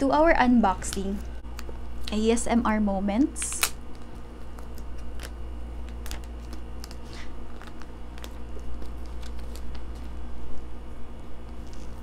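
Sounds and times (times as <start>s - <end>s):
steady low hum: 0.0s - 12.0s
plastic shrink-wrap crinkling: 3.4s - 10.7s.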